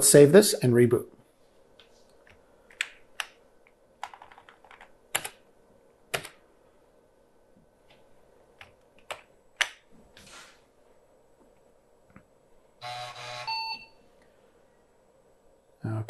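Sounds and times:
computer keyboard clicks: 0:04.0 - 0:05.4.

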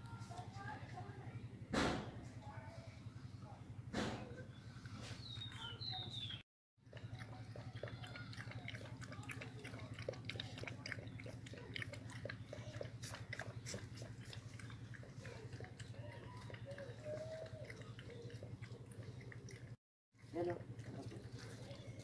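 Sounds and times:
puppy lapping water: 0:06.8 - 0:22.0.

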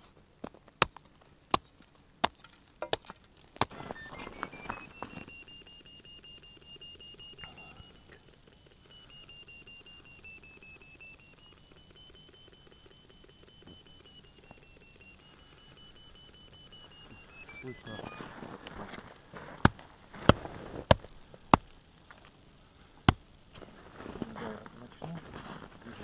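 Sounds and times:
high electronic locator tone: 0:03.6 - 0:19.0.

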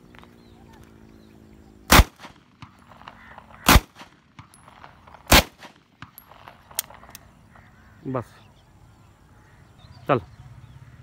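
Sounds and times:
pistol shots: 0:01.9 - 0:04.6, 0:05.2 - 0:06.9.

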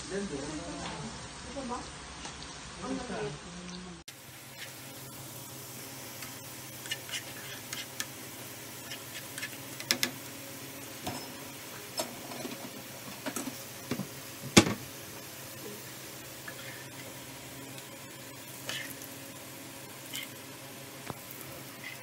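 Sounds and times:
garlic sizzling in oil: 0:00.0 - 0:22.0
metal spoon scraping pan: 0:06.8 - 0:08.1, 0:18.6 - 0:19.0, 0:21.8 - 0:22.0.

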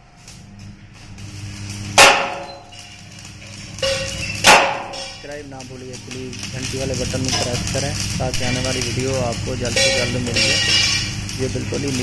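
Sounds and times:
low steady hum: 0:00.0 - 0:12.0
hammer striking steel: 0:02.0 - 0:02.8, 0:03.8 - 0:05.3, 0:09.7 - 0:11.1.

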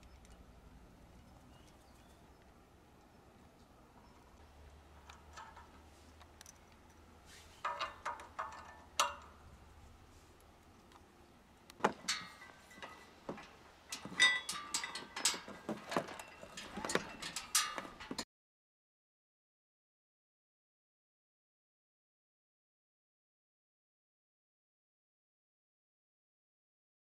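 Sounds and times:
metal frame parts clinking: 0:04.9 - 0:11.0, 0:11.7 - 0:18.2.

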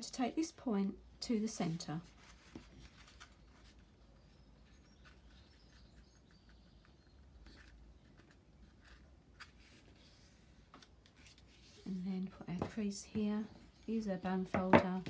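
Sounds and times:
paper rustling: 0:02.0 - 0:04.0, 0:07.4 - 0:11.9.

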